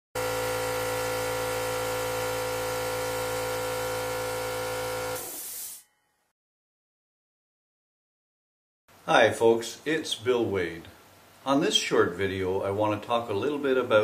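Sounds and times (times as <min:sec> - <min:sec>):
air compressor running: 0:00.2 - 0:05.8
burst of hissing air: 0:05.2 - 0:05.8.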